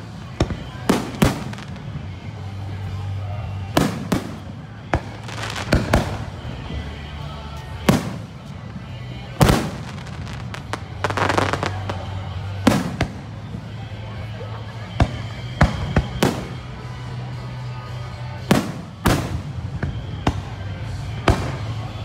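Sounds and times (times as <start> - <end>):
fireworks bangs: 3.7 - 6.7, 7.7 - 8.5, 9.4 - 13.4.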